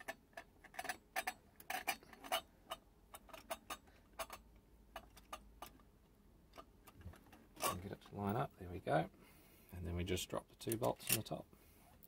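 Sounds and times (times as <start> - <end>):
metal parts clicking together: 0.0 - 5.8, 10.6 - 11.4.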